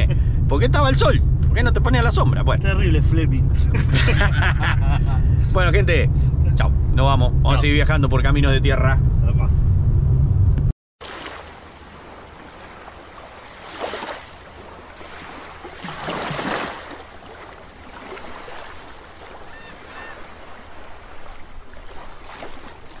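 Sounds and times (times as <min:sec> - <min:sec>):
underwater watery rush: 0:11.0 - 0:23.0.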